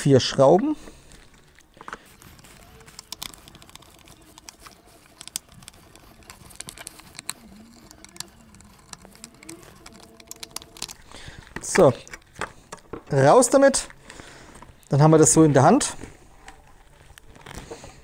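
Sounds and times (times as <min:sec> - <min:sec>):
screwdriver clicking and scraping: 0:01.2 - 0:12.9.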